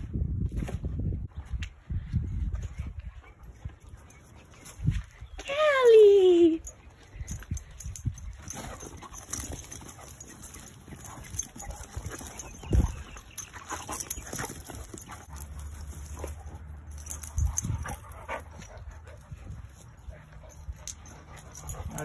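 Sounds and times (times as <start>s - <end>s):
dog paws scuffling on dirt: 6.7s - 22.0s.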